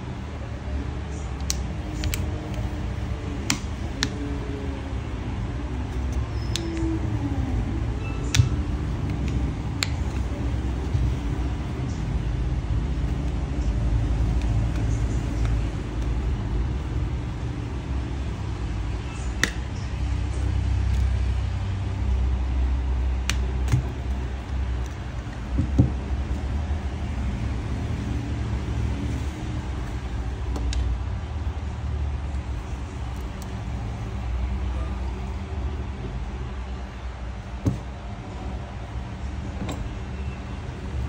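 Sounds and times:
low traffic rumble: 0.0s - 41.0s
plastic phone cover clips snapping: 1.4s - 2.6s, 19.4s - 19.6s.

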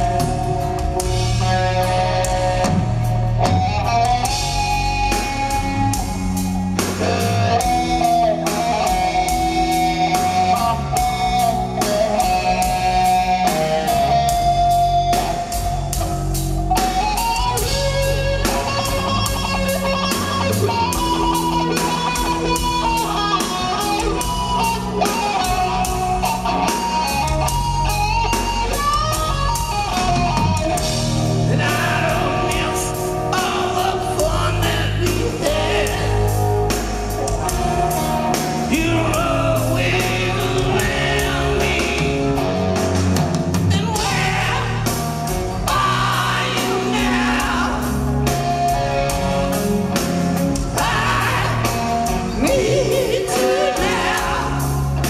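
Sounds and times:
rock band playing: 0.0s - 55.0s
man singing lead vocal: 31.4s - 36.5s, 38.3s - 42.7s, 43.7s - 45.0s, 45.6s - 48.4s, 50.6s - 55.0s.

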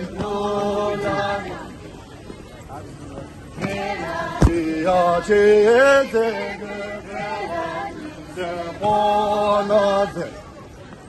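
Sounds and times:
men singing in unison: 0.0s - 1.7s, 3.6s - 10.3s.

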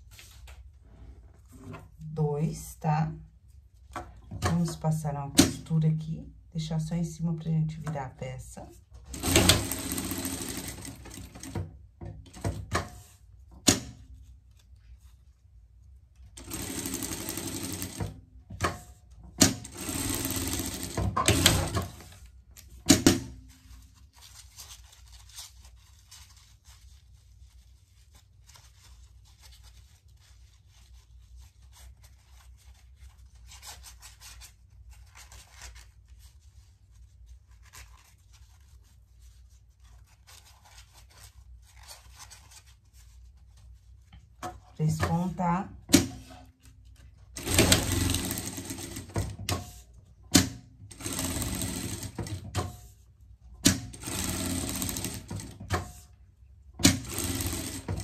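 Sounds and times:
sewing machine stitching: 9.1s - 11.6s, 16.4s - 18.1s, 19.4s - 22.0s, 47.4s - 49.7s, 50.4s - 52.6s, 53.7s - 55.9s, 56.8s - 58.0s.

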